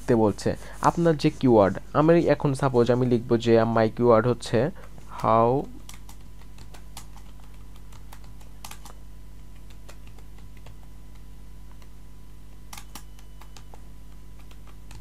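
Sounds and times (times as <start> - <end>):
low electrical hum: 0.0 - 15.0
keyboard typing: 4.8 - 12.0, 12.6 - 15.0.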